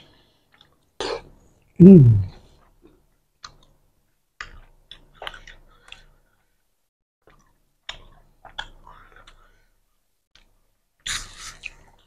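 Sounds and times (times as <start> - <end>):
chewing and lip smacks: 4.4 - 6.2, 7.2 - 9.5.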